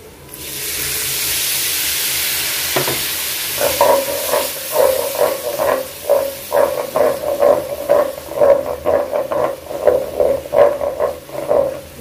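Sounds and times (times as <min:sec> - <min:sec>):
loud sizzling hiss in a pan: 0:00.3 - 0:12.0
thick mixture bubbling with pops: 0:03.6 - 0:12.0.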